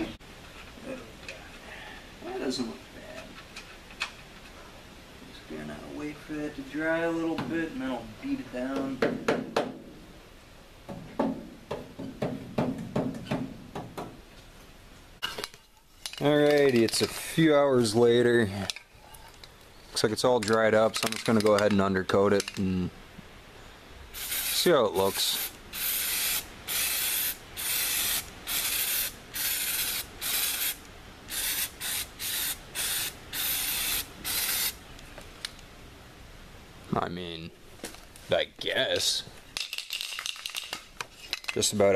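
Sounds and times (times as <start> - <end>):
aerosol can spraying: 24.2 - 34.8.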